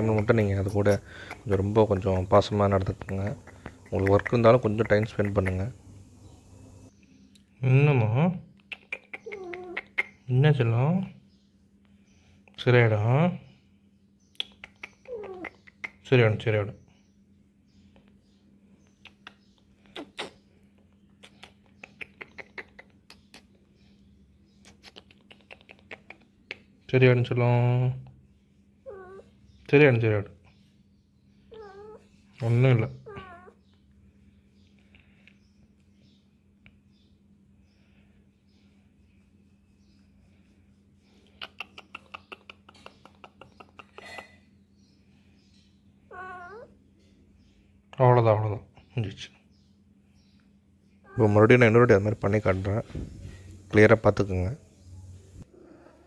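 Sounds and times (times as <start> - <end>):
low steady hum: 0.0 - 8.7
cat chirping calls: 8.8 - 10.2, 14.9 - 16.0, 28.8 - 29.4, 31.4 - 32.1, 33.0 - 33.7, 46.0 - 46.8, 51.0 - 51.4.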